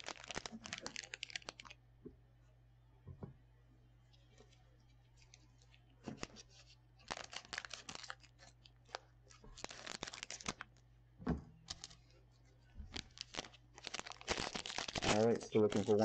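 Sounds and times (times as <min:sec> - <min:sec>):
foil wrapper crinkling and tearing: 0:00.0 - 0:01.8, 0:05.2 - 0:10.8, 0:11.7 - 0:12.2, 0:12.9 - 0:16.0
thump: 0:03.1 - 0:03.4, 0:11.2 - 0:11.6.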